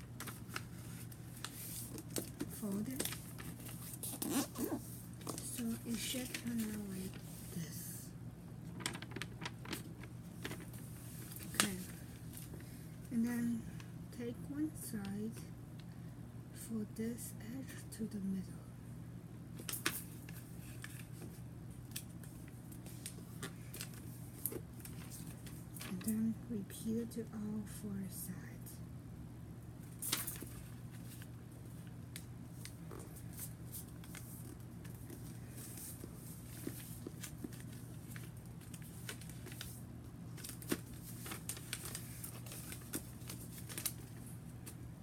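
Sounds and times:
steady low hum: 0.0 - 45.0
paper folding and crinkling: 0.2 - 7.5, 8.7 - 12.7, 29.9 - 44.8.

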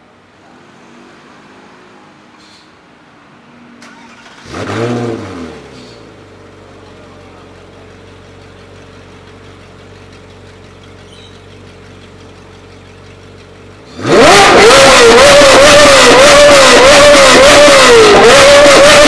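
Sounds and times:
sports car engine idling and revving: 4.1 - 19.0.

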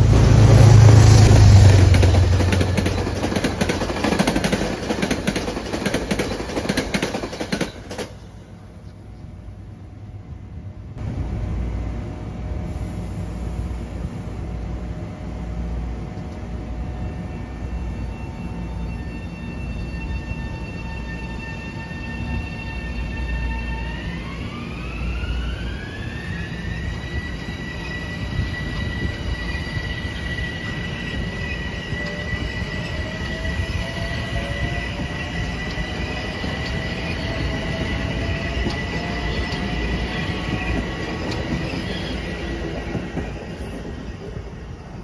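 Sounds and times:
wheels rumbling on rail: 0.0 - 21.2, 21.9 - 45.0
electric train motors whining: 18.8 - 43.8.

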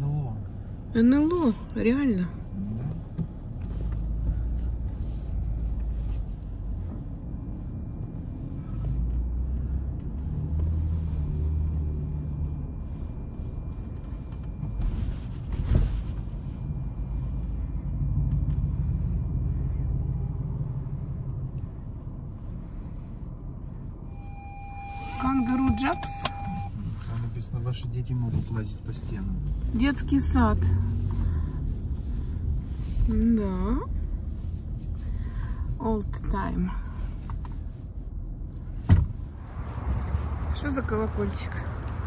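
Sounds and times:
car road and engine rumble: 0.0 - 42.0.

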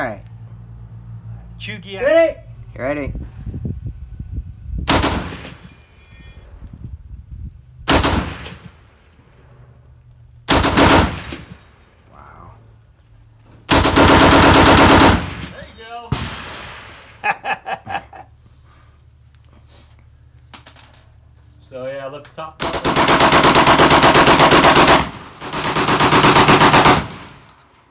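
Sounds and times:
heavy machine gun bursts: 4.9 - 5.6, 7.9 - 8.7, 10.5 - 11.6, 13.7 - 15.6, 22.6 - 27.4.

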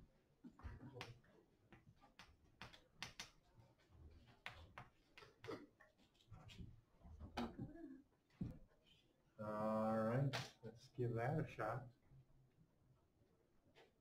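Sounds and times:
chalk tapping on chalkboard: 4.2 - 5.5.

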